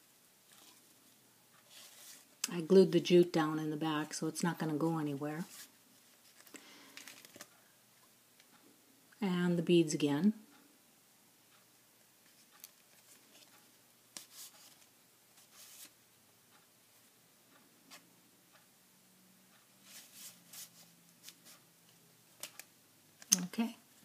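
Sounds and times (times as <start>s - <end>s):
paper pages rustling and tapping: 5.5s - 7.5s.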